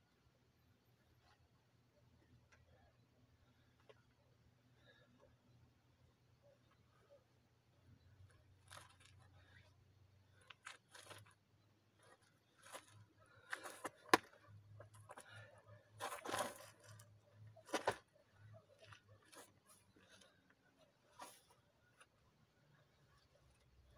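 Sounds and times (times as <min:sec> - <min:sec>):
feet scraping on dirt path: 0:16.0 - 0:17.0.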